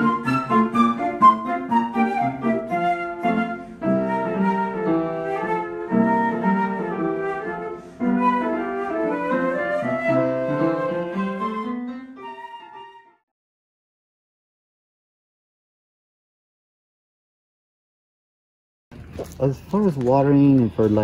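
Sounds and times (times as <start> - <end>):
instrumental background music: 0.0 - 13.2.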